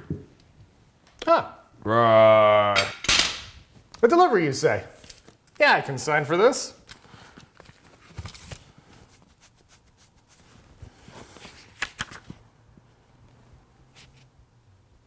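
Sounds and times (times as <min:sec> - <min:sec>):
clothing rustling: 0:07.0 - 0:12.4.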